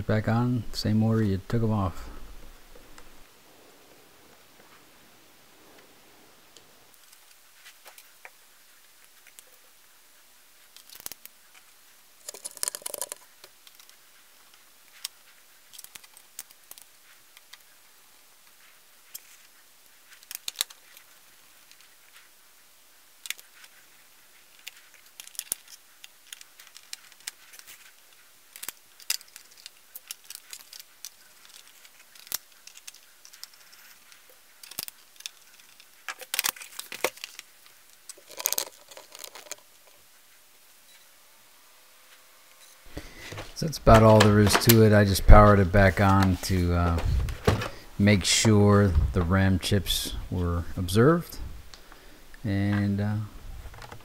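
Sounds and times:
rattling handling noises: 42.9 - 49.3.

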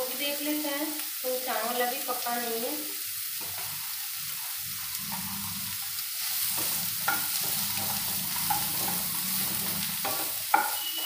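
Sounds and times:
food sizzling in a pan: 0.0 - 11.0
wooden spatula scraping a pan: 3.4 - 11.0.

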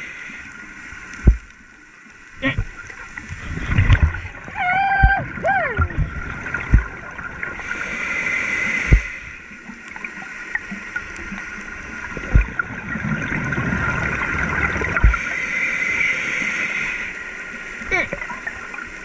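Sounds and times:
dull low thumps: 1.2 - 1.5, 4.9 - 7.1, 8.9 - 9.1, 12.2 - 12.6, 14.9 - 15.2
rush of exhaled bubbles underwater: 2.4 - 15.4.

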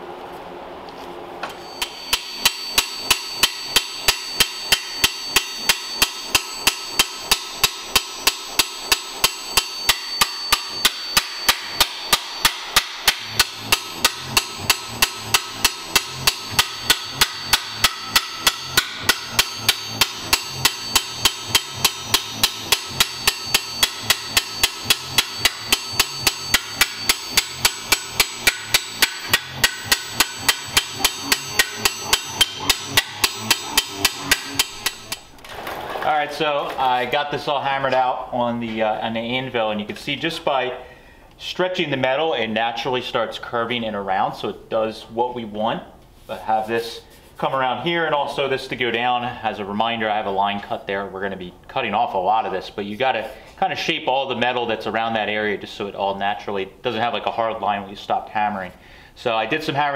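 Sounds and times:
hammer striking sheet steel: 1.4 - 35.3.

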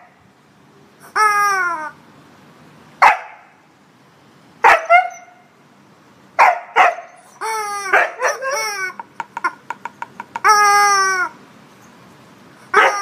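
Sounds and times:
dog barking: 3.0 - 3.5, 4.6 - 5.4, 6.4 - 7.2, 7.9 - 8.5, 12.8 - 13.0.

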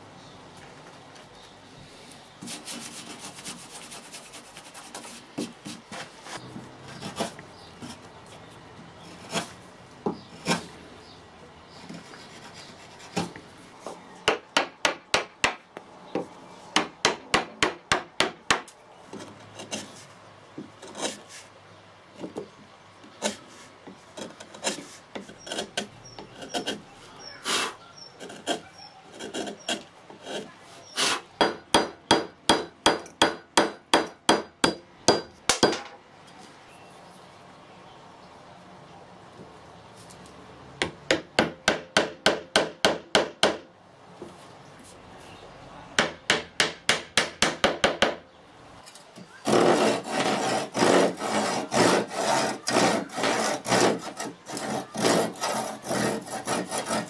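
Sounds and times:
chisel strikes on wood: 31.4 - 36.0, 40.8 - 43.7, 46.0 - 48.2
wood chips being pared off: 49.4 - 57.0.

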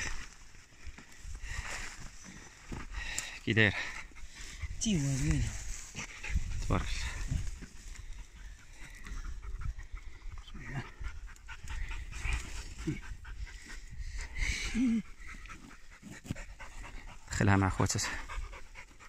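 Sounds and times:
dog panting: 3.6 - 19.0.

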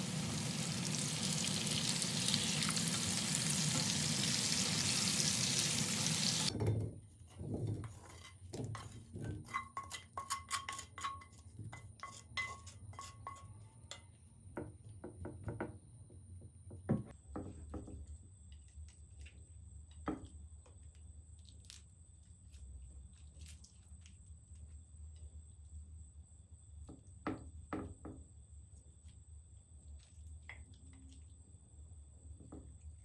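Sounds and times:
vegetables sizzling in skillet: 0.0 - 6.5
wooden spatula scraping skillet: 7.3 - 13.5.

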